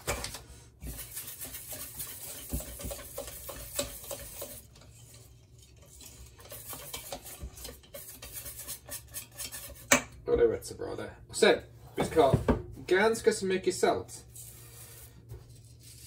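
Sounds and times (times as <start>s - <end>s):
whisk clinking in metal bowl: 0.8s - 10.1s.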